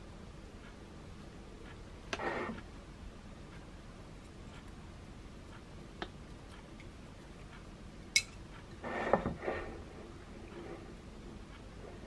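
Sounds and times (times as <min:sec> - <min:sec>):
ceramic pot scraping on counter: 0:08.8 - 0:11.0.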